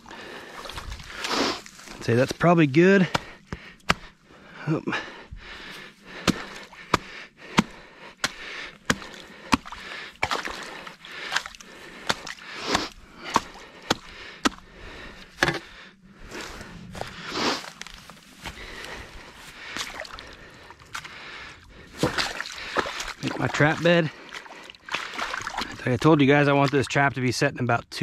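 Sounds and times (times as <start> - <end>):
mud and water squelching: 0.0 - 26.9
shovel blade striking mud: 6.2 - 14.6.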